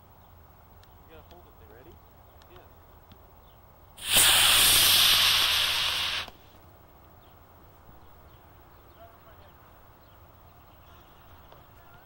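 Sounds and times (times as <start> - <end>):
rocket motor hissing: 4.0 - 6.5.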